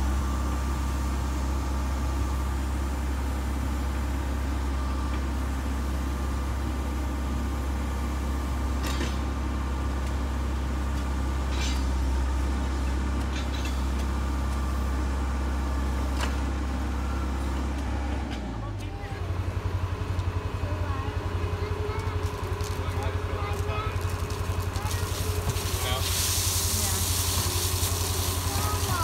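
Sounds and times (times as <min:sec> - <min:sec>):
diesel engine idling: 0:14.0 - 0:29.0.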